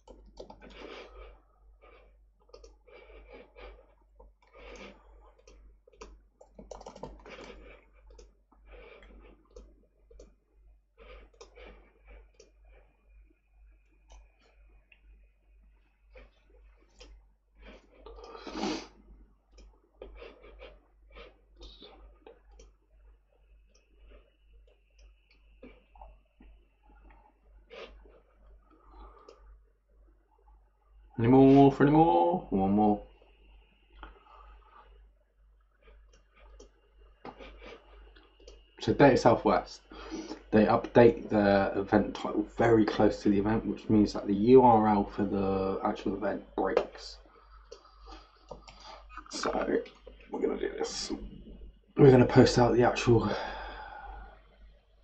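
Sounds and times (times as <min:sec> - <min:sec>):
keyboard typing: 0:00.0 - 0:01.0, 0:04.4 - 0:08.3.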